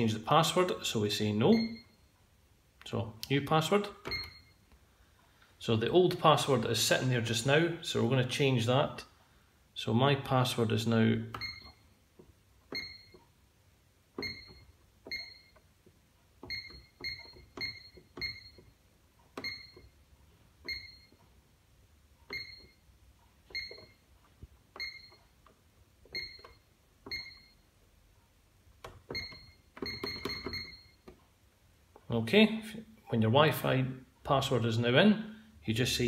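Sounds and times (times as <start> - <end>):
alarm keypad beeps: 1.5 - 2.1, 4.0 - 4.6, 11.3 - 12.0, 12.7 - 13.2, 14.2 - 15.6, 16.4 - 18.7, 19.4 - 20.0, 20.6 - 21.2, 22.3 - 22.9, 23.5 - 24.0, 24.8 - 25.2, 26.1 - 27.7, 29.1 - 31.1.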